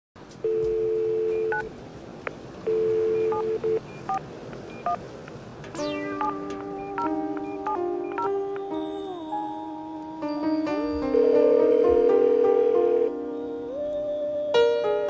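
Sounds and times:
telephone dial tone: 0.5 - 1.7, 2.7 - 4.2
touch-tone keypad beeps: 0.5 - 1.7, 2.7 - 5.0, 5.7 - 8.4
chiming glockenspiel music: 8.1 - 15.0.

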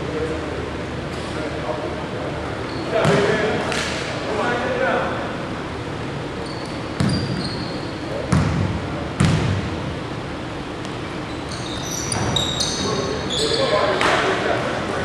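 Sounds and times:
sneakers squeaking on hardwood: 6.4 - 8.6, 10.8 - 14.2
basketball bouncing on hardwood floor: 8.3 - 9.6.

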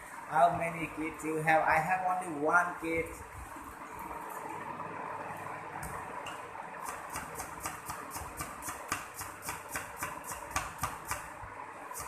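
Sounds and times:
knife chopping on wooden board: 6.8 - 11.3.

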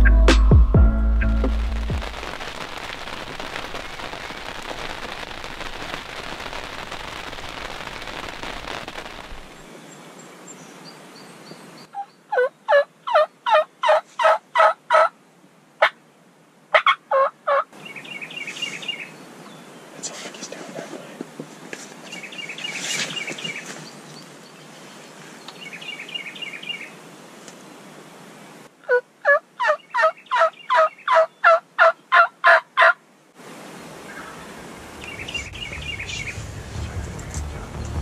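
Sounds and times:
steady hiss: 1.3 - 11.4, 33.0 - 38.0
wild turkey yelping: 12.0 - 15.1, 16.7 - 17.7, 28.9 - 33.0, 34.1 - 34.5.

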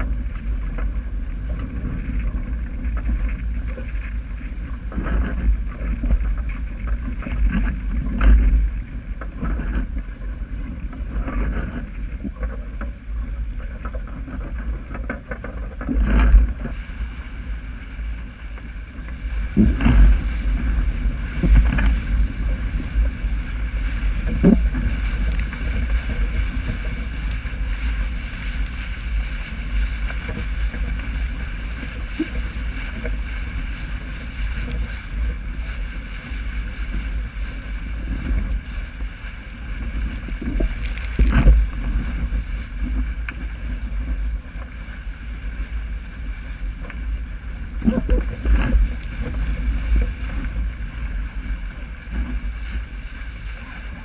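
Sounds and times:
water rushing past hull: 0.0 - 54.0
wind buffeting microphone: 0.0 - 54.0
hull slamming into waves: 29.0 - 44.3.

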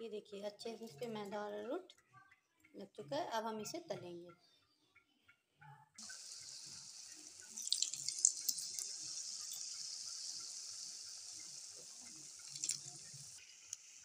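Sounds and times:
oil crackling and spitting: 6.0 - 14.0
potato strips sizzling in hot oil: 6.0 - 14.0.

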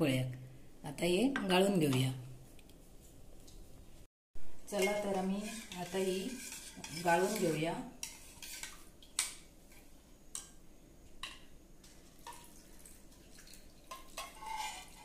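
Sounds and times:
spoon scraping a steel pot: 4.8 - 8.8, 13.9 - 15.0
liquid pouring and dripping: 11.8 - 14.4.

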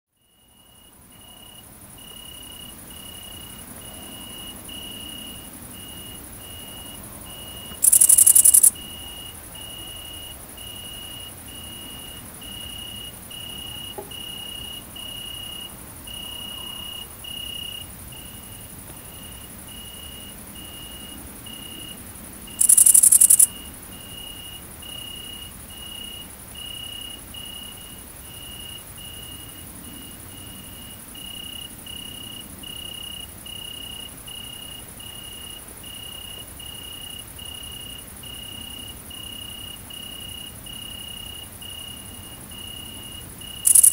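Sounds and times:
bush-crickets buzzing: 0.2 - 43.9
insect trilling: 7.5 - 9.2, 22.6 - 23.6, 43.6 - 43.9
loud insect buzzing burst: 7.8 - 8.7, 22.6 - 23.5, 43.7 - 43.9.

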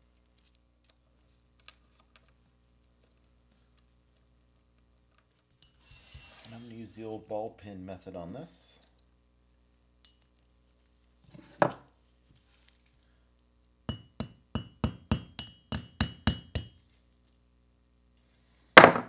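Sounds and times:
hammer tapping on metal: 13.9 - 16.8.

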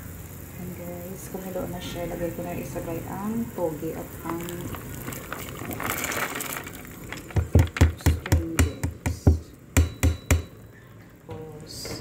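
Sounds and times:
vegetables hissing in boiling broth: 0.0 - 9.8
sharp knocks: 7.3 - 10.6.

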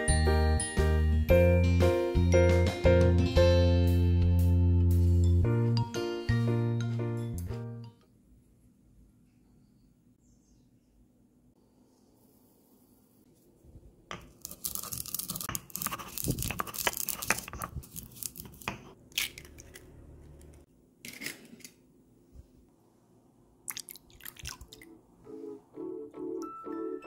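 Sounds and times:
soft keyboard music: 0.0 - 8.0, 24.9 - 27.0
pestle crushing seeds in mortar: 14.1 - 19.8
eggs cracking: 14.1 - 21.3, 23.7 - 24.8.

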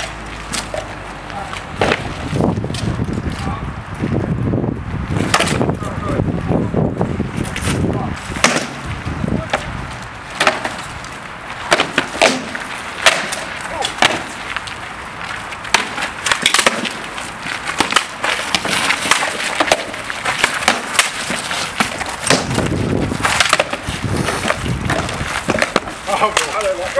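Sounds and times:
swords striking wooden shields: 5.3 - 5.6, 8.4 - 8.8, 10.4 - 10.8, 11.6 - 14.4, 15.7 - 17.1, 17.7 - 26.9.

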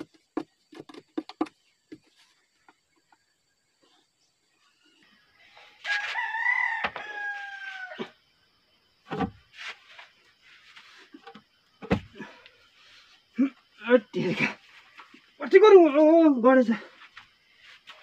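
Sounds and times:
dull knocks of wooden post: 0.0 - 2.1, 11.3 - 12.2
rooster crowing: 5.8 - 8.2.

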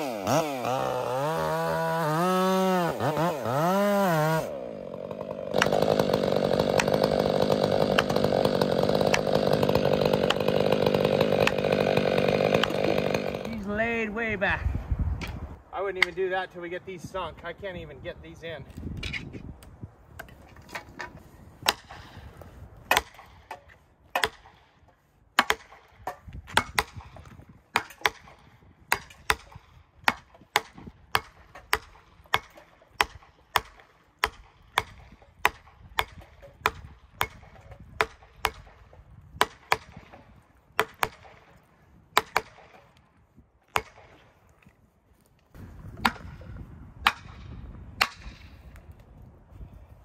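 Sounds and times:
hammer striking wedges: 5.5 - 13.4, 22.9 - 24.6, 25.4 - 27.1, 27.8 - 38.8, 40.8 - 41.4, 42.2 - 42.9, 43.7 - 44.2, 46.0 - 47.4.

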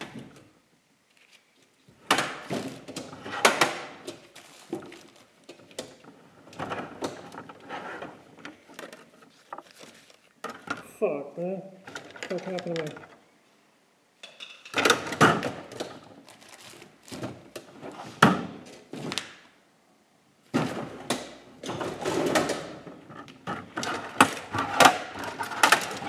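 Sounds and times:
objects knocking and clattering: 2.0 - 11.0, 20.5 - 26.0.

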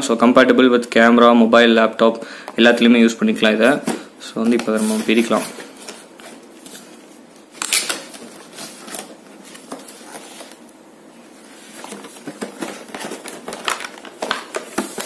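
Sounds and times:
plastic wrapping rustling: 4.4 - 10.7, 11.4 - 15.0.

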